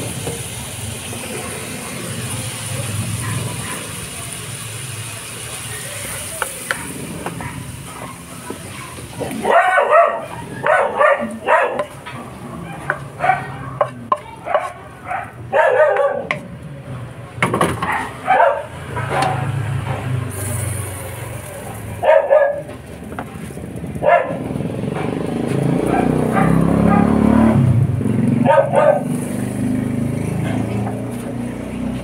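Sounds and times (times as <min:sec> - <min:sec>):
dog barking: 0:03.2 - 0:04.0, 0:06.8 - 0:12.0, 0:12.6 - 0:16.4, 0:17.8 - 0:19.6, 0:22.0 - 0:22.7, 0:24.0 - 0:25.2, 0:25.8 - 0:27.2, 0:28.4 - 0:29.2
wooden spoon scraping a wok: 0:11.3 - 0:15.0.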